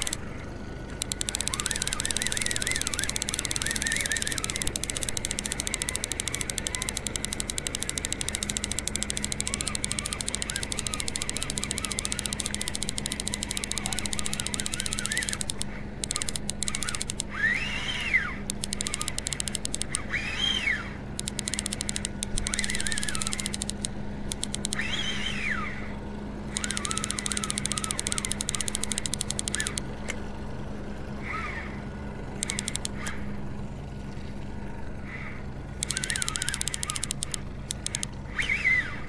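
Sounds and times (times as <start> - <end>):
fishing reel ticking: 0.0 - 0.3, 0.9 - 20.5, 21.2 - 25.0, 26.5 - 29.8, 32.4 - 33.2, 35.7 - 38.2
low boat motor hum: 0.0 - 39.0
short whistling tones: 0.9 - 29.8, 35.2 - 39.0.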